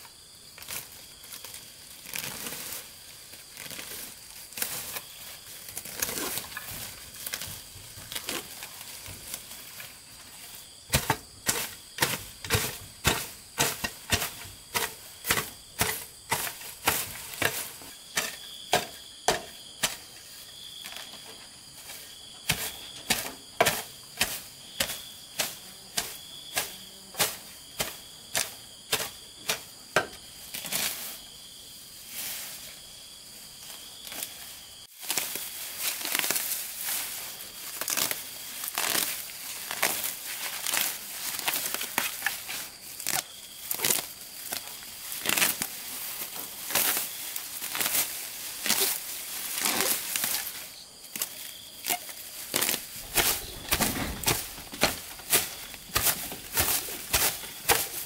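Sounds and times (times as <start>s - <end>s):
grass being torn out rustling: 0.6s - 19.0s, 30.3s - 31.3s, 32.0s - 58.0s
hoe chopping into soil: 10.9s - 20.1s, 22.5s - 31.0s, 51.9s - 58.0s.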